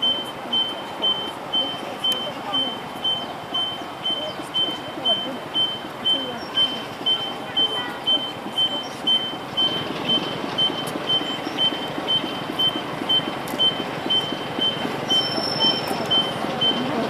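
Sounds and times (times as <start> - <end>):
electronic alarm beeping: 0.0 - 17.0
mechanical rumble: 8.0 - 17.0.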